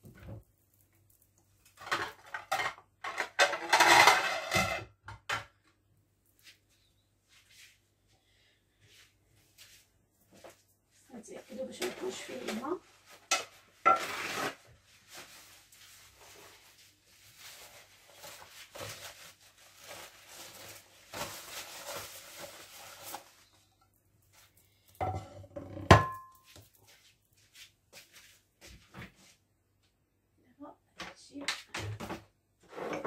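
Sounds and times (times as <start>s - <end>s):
soft rustling and handling: 6.2s - 13.8s, 14.8s - 25.0s, 26.3s - 29.5s
glass platter clinking on counter: 25.0s - 26.5s.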